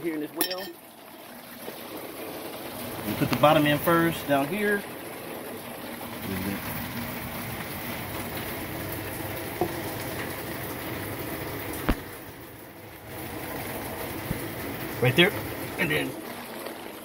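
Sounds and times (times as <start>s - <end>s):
rain hiss: 0.0s - 17.0s.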